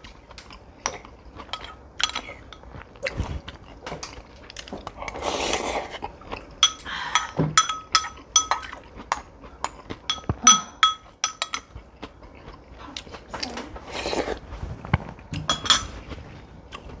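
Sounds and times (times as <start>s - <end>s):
soft eating sound: 0.0s - 17.0s
spoon clinking on ceramic bowls: 6.6s - 11.7s, 15.4s - 16.0s.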